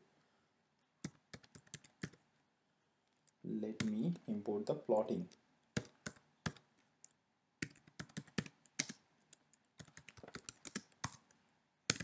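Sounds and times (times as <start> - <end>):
keyboard typing: 1.0 - 2.2, 3.7 - 4.1, 5.8 - 12.0.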